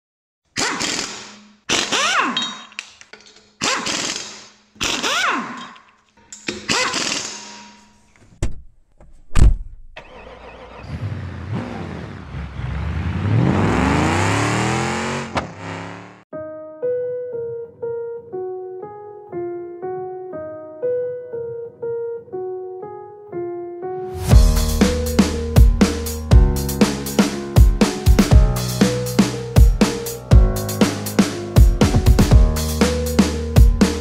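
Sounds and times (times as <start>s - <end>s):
car engine revving: 10.3s - 16.2s.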